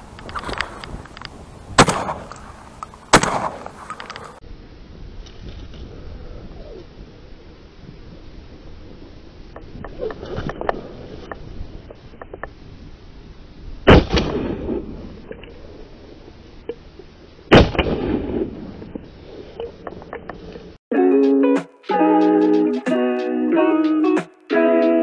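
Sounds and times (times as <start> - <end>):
soft clicks and rustles: 0.0 - 1.5, 2.3 - 4.4
shotgun shots with echo: 1.8 - 2.4, 3.1 - 4.0, 13.9 - 14.9, 17.5 - 18.7.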